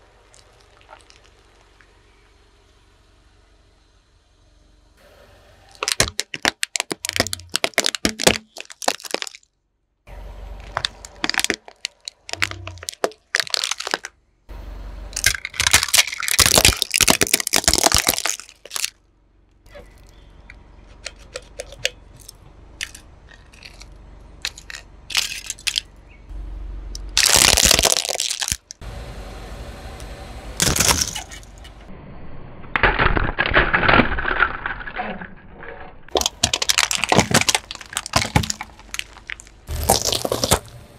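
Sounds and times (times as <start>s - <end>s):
tyre crushing objects: 5.8s - 9.4s, 10.6s - 14.1s, 15.2s - 18.9s, 27.2s - 28.7s, 36.1s - 40.8s.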